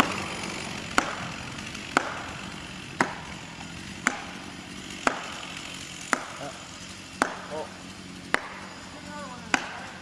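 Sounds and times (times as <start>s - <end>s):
sharp ringing strikes on wedges: 1.0s - 1.3s, 4.0s - 4.4s, 5.0s - 10.0s.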